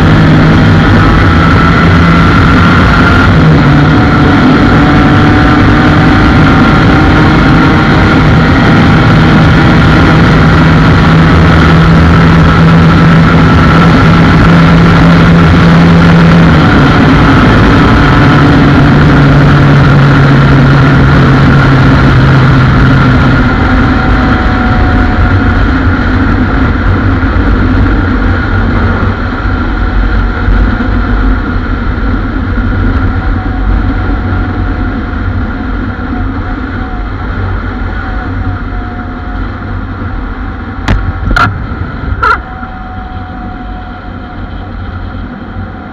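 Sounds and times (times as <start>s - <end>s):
two-stroke engine revving hard: 0.0s - 28.1s
wind rushing: 0.0s - 45.9s.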